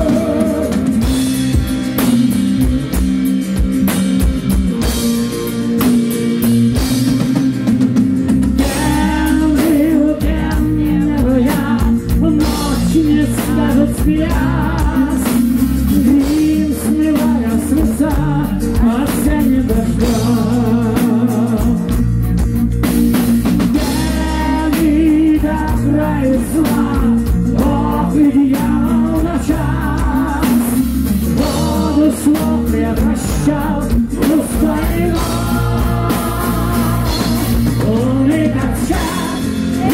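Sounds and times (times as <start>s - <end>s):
man singing lead vocal: 0.0s - 1.8s, 8.6s - 22.2s, 23.7s - 39.9s
heavy metal band playing: 0.0s - 39.9s.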